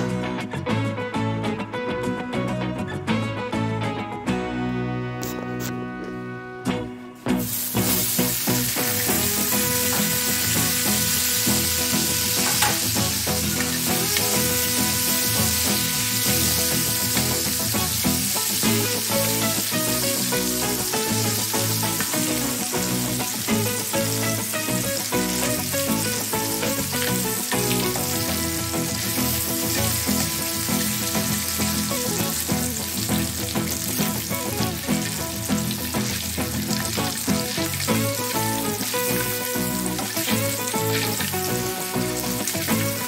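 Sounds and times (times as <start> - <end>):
background music: 0.0 - 43.0
food sizzling in oil: 7.3 - 43.0
metal tongs turning food: 12.3 - 14.7.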